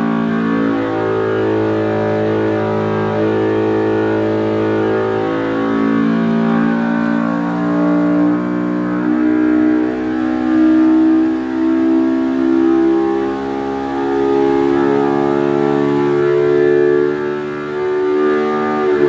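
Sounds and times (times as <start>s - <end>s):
engine revving at full load: 0.0s - 19.0s.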